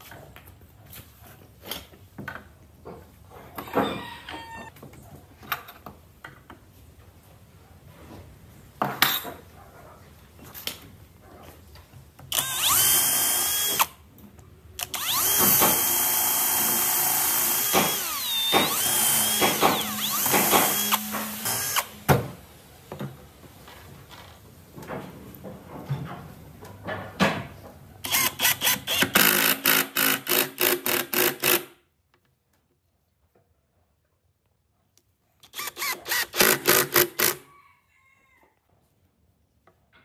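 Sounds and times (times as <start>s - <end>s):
cordless drill whining: 12.3s - 14.0s, 14.8s - 22.2s, 28.0s - 31.6s, 35.4s - 37.4s.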